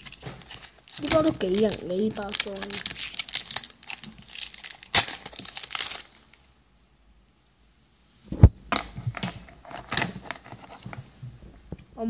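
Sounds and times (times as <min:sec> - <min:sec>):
wrapper crinkling and tearing: 0:00.0 - 0:06.5, 0:09.5 - 0:11.0.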